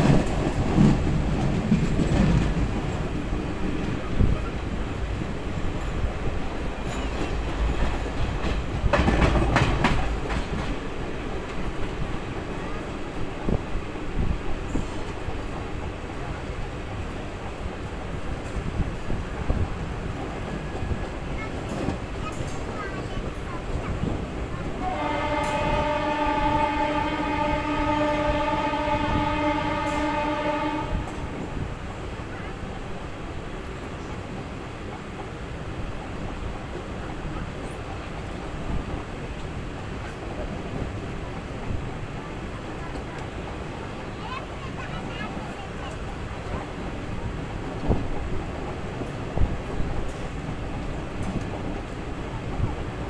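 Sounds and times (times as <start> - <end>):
train wheels rumbling on rails: 0.0 - 53.0
train horn blast: 24.8 - 31.6.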